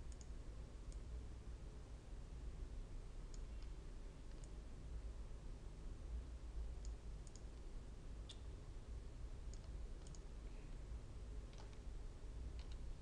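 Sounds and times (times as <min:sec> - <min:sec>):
computer mouse clicking: 0:00.0 - 0:00.3, 0:03.3 - 0:04.6, 0:06.8 - 0:07.6, 0:09.5 - 0:10.3, 0:11.5 - 0:11.8, 0:12.5 - 0:13.0
low electrical hum: 0:00.0 - 0:13.0.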